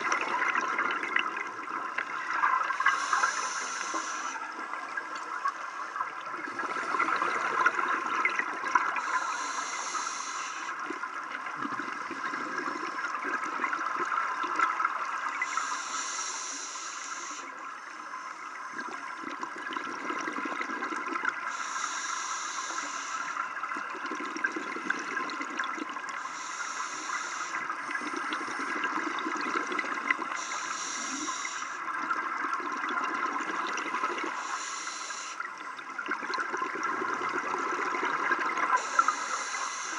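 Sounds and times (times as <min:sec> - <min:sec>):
exhaled air bubbling: 0:00.0 - 0:17.4, 0:18.5 - 0:39.9
diver inhaling through regulator: 0:02.8 - 0:04.4, 0:09.0 - 0:10.8, 0:15.4 - 0:17.6, 0:21.5 - 0:23.4, 0:26.2 - 0:28.9, 0:30.2 - 0:31.9, 0:34.2 - 0:35.5, 0:38.8 - 0:39.9.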